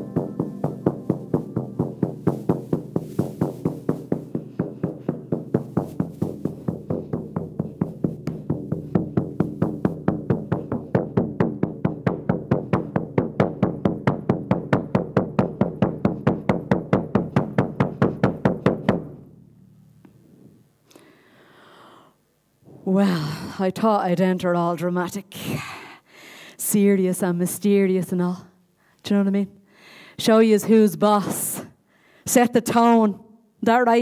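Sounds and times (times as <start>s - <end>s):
frame drum beaten steadily: 0.0s - 18.9s.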